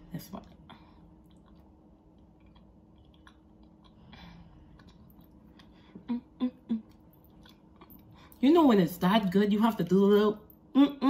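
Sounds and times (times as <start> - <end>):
soft chewing with wet mouth clicks: 1.1 - 8.1
closed-mouth hums: 2.5 - 7.6, 10.7 - 11.0.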